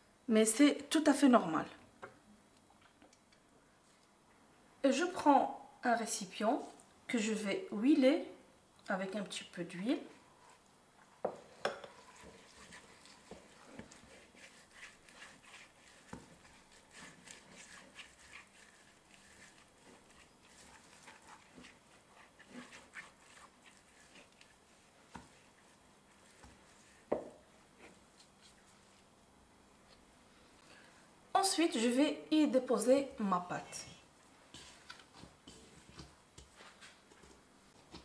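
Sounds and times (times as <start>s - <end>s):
brush strokes against bowl: 10.2s - 29.1s, 33.6s - 38.0s.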